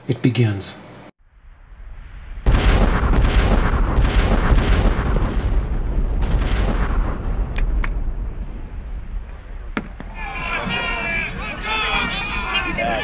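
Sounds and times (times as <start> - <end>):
rumble of explosions and shots: 0.9 - 12.8
cannon boom: 1.4 - 10.8
sharp gunshot cracks: 2.4 - 8.0.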